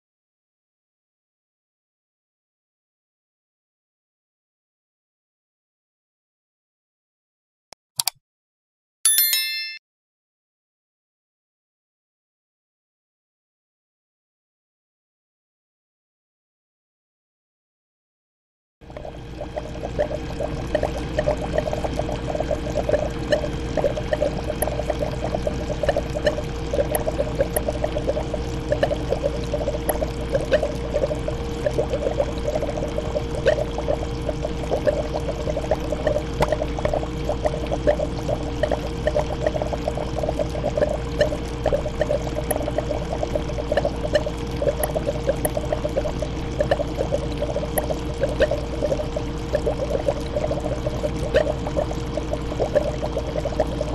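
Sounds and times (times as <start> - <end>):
aquarium water bubbling: 18.8 - 53.9.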